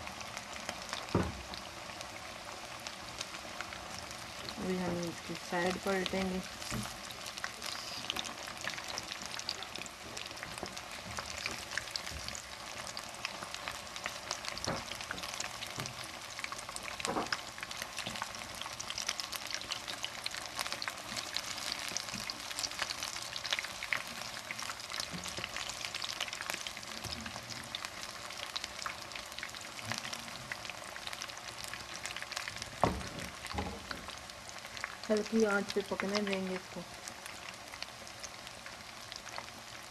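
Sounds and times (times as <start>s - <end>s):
chicken frying in hot oil: 0.0s - 39.9s.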